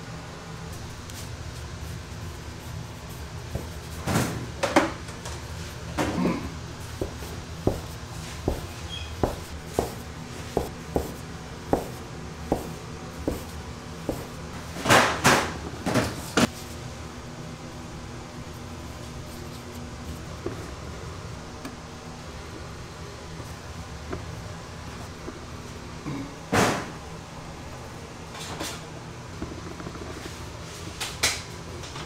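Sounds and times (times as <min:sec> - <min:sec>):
heavier thumps of dough handling: 0:06.9 - 0:16.5
bench scraper chopping dough: 0:07.0 - 0:14.4.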